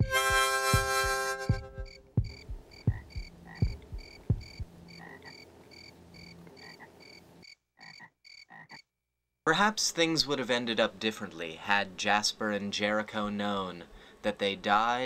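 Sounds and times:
heartbeat thumps: 0.0 - 5.3
rhythmic night chirping: 0.0 - 8.9.

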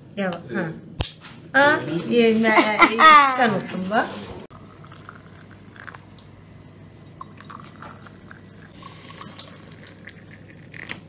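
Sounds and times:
eggshells cracking: 9.4 - 11.0.

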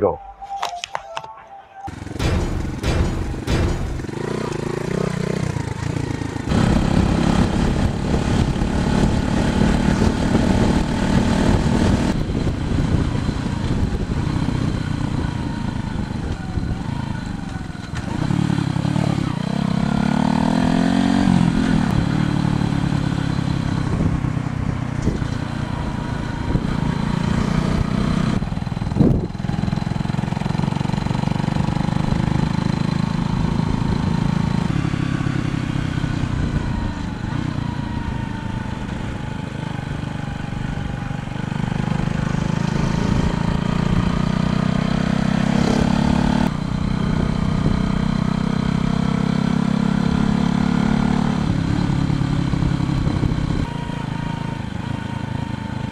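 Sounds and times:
motorcycle engine running: 1.9 - 55.9
sharp knock: 2.1 - 5.0.

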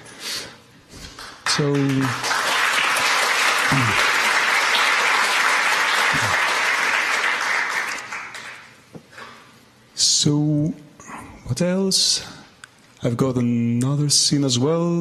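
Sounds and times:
audience applauding: 1.1 - 8.8.

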